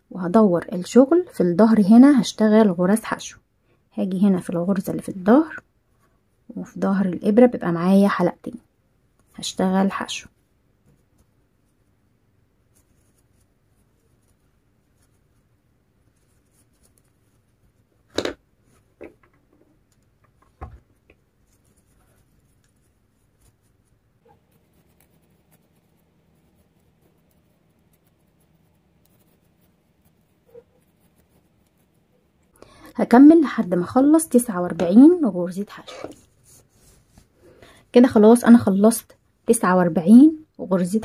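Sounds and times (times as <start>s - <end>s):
cord scratching and rubbing: 12.6s - 32.5s, 33.5s - 37.4s.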